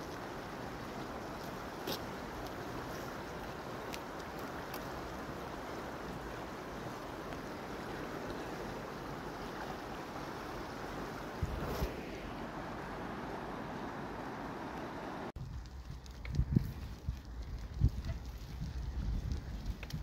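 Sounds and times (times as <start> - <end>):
shallow river rushing: 0.0 - 15.3.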